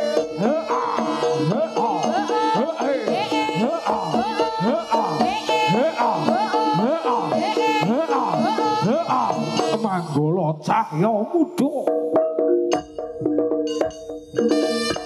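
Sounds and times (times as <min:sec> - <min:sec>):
sustained pitched tones: 0:00.0 - 0:10.4.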